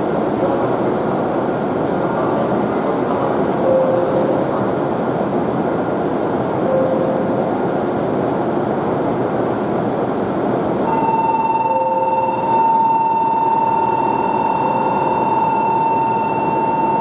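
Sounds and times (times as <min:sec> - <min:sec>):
train whirring hum: 0:00.0 - 0:17.0
faint beep: 0:10.9 - 0:17.0
steady electronic tone: 0:10.9 - 0:17.0.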